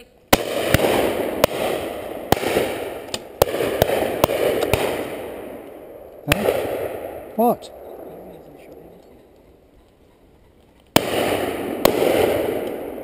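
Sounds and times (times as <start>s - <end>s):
gunshot echo: 0.3s - 7.8s, 10.9s - 13.0s
shotgun shots: 0.3s - 7.9s, 10.9s - 13.0s.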